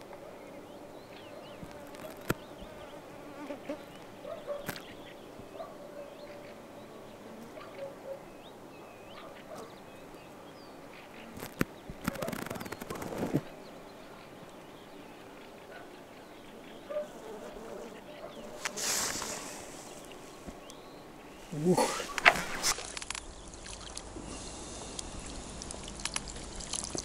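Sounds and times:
small birds chirping: 0.0s - 27.0s
sharp clicks: 11.4s - 13.4s, 22.1s - 23.3s, 25.0s - 27.0s
insect buzzing: 17.0s - 20.4s.

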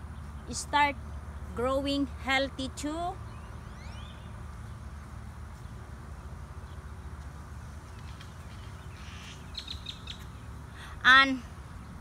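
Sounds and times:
high bird chirps: 8.0s - 10.6s.

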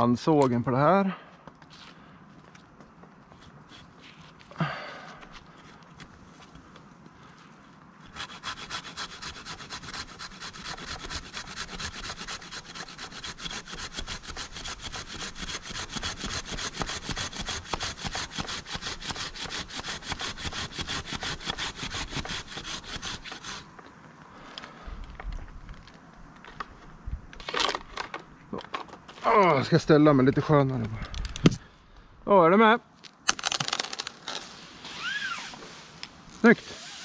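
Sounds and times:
hand saw cutting tree limb: 8.0s - 23.7s, 36.4s - 37.0s.

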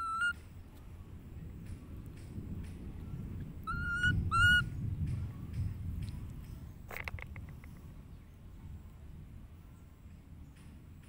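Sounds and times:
baby monkey coo calls: 0.0s - 0.4s, 3.7s - 4.7s.

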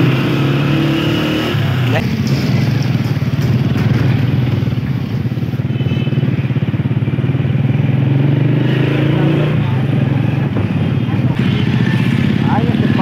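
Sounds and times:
small motorcycle engine running: 9.5s - 13.0s.

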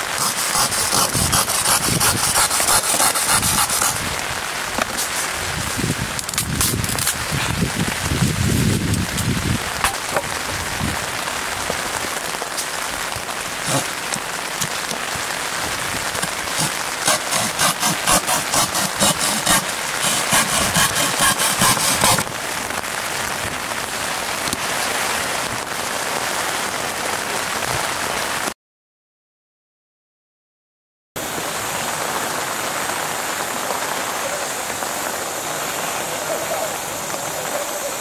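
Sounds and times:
rasping strokes: 0.0s - 4.0s, 13.7s - 13.9s, 16.2s - 22.3s
rain on wet ground: 0.0s - 28.6s, 31.2s - 38.0s.

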